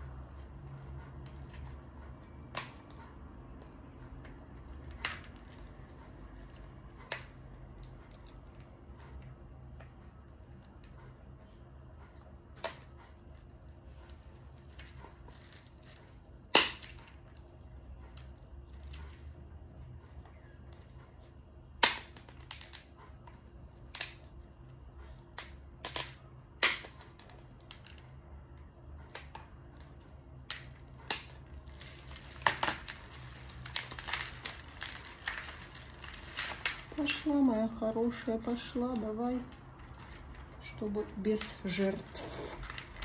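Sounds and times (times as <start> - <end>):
plastic crackling: 0.1 - 8.7, 12.5 - 19.3, 25.3 - 43.0
shears snapping through plastic: 2.5 - 3.1, 14.8 - 17.2, 25.4 - 27.8, 30.4 - 37.6.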